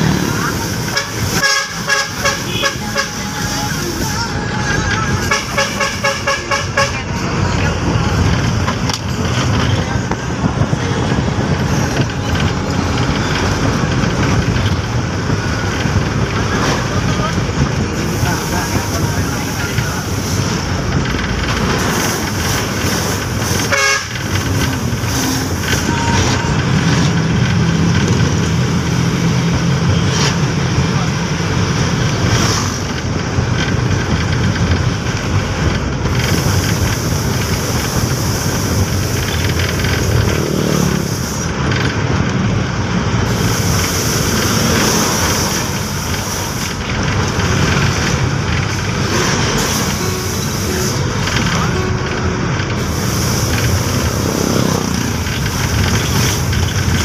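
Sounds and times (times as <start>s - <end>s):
engine and tyre rumble: 0.0s - 57.0s
large vehicle passing: 7.0s - 57.0s.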